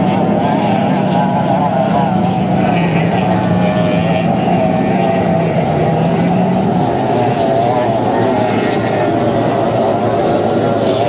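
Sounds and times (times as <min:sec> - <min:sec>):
lower engine tone: 0:00.0 - 0:11.0
racing boat engines at speed: 0:00.0 - 0:11.0.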